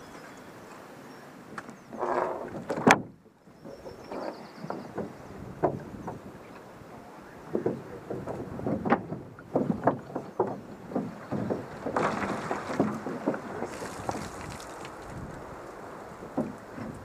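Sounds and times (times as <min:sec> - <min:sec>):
canoe hull knocks and creaks: 0:01.5 - 0:17.0
short rustle: 0:11.9 - 0:15.8.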